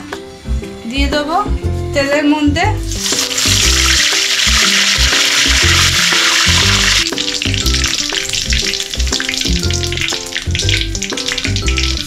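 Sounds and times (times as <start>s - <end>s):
background music with steady beat: 0.0s - 12.0s
leaves sizzling in hot oil: 2.9s - 12.0s.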